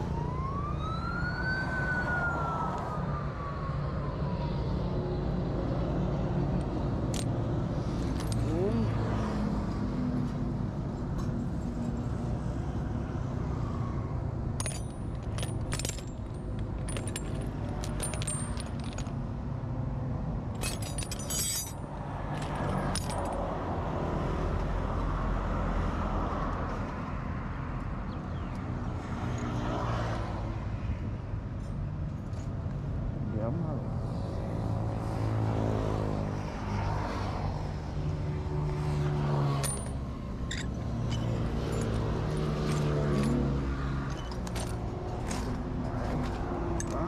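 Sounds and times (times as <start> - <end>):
metal scraps jangling and clinking: 14.6 - 19.2, 20.5 - 23.4, 39.5 - 45.6, 46.7 - 47.0.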